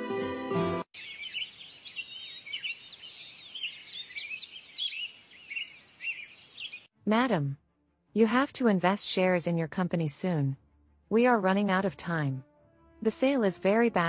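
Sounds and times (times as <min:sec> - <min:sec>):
music: 0:00.0 - 0:00.9, 0:07.0 - 0:14.0
birds chirping: 0:00.9 - 0:06.9.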